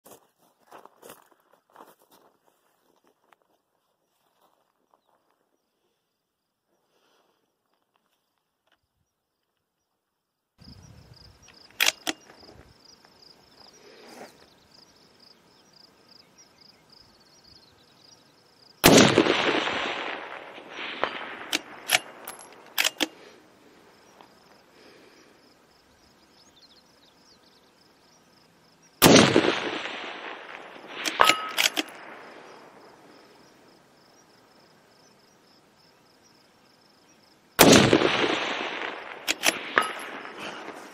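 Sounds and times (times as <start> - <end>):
rifle bolt clicks: 11.7 - 12.3, 21.5 - 23.2, 31.0 - 32.0, 39.3 - 40.0
rifle shots: 11.7 - 12.3, 18.8 - 23.3, 29.0 - 33.1, 37.6 - 40.9
rolling echo: 18.8 - 23.2, 29.0 - 33.3, 37.6 - 40.9.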